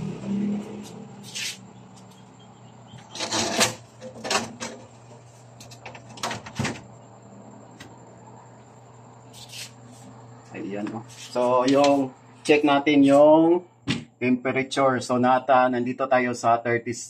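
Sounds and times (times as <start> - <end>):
low motor hum: 0.0 - 11.1.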